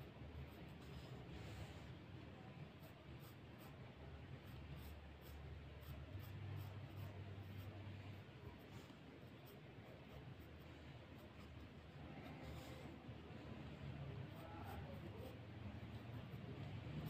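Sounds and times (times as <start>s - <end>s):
pencil scratching on paper: 0.0s - 1.5s, 2.7s - 13.6s.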